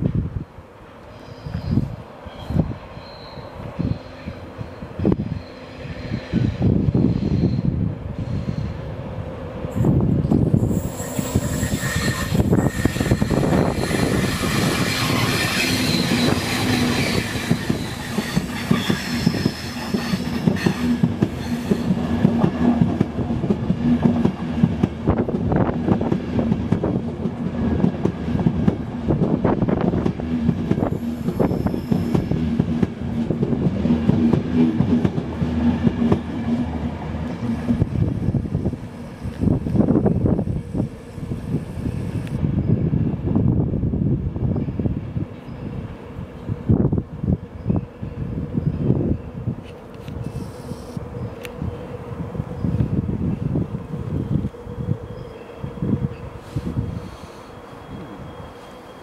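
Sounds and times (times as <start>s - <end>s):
low train hum: 0.0s - 59.0s
high-pitched whine: 9.7s - 19.8s, 50.2s - 59.0s
train wheels clacking over rail joints: 11.7s - 25.0s.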